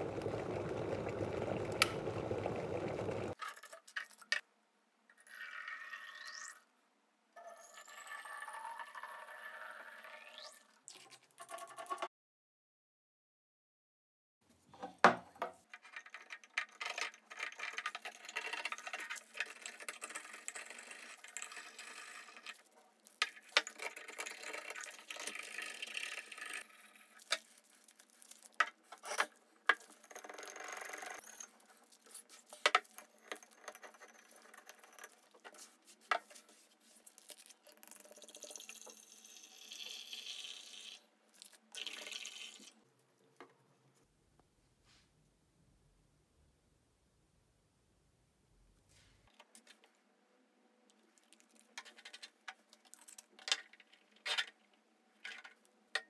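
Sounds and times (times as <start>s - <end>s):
rustling and scraping: 27.0s - 30.2s, 31.5s - 37.6s, 48.9s - 49.9s.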